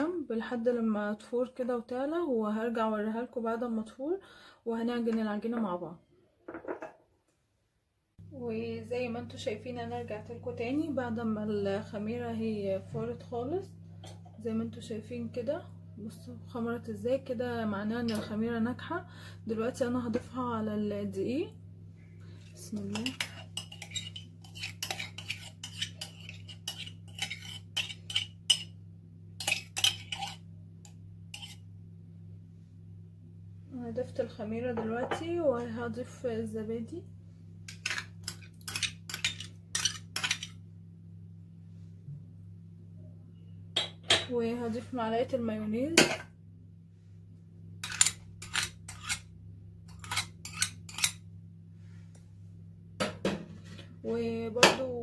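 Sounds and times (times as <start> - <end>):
metal spoon scraping ceramic mug: 22.8 - 28.7, 29.4 - 30.4, 31.3 - 31.6, 37.8 - 40.5, 47.8 - 49.3, 49.9 - 51.2.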